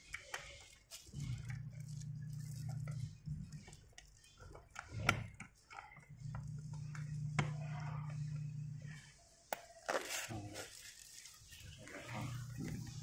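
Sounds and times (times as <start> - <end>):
plastic wrapping crinkling: 0.3 - 4.8, 9.6 - 13.0
low steady hum: 0.3 - 13.0.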